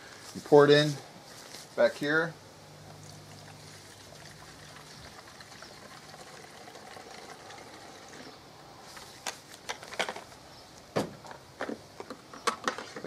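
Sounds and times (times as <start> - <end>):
liquid pouring from bottle: 3.0 - 8.3.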